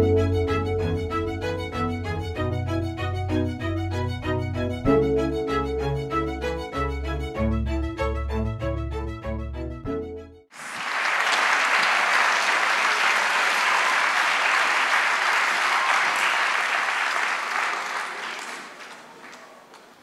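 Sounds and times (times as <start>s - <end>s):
audience applauding: 10.5s - 20.0s.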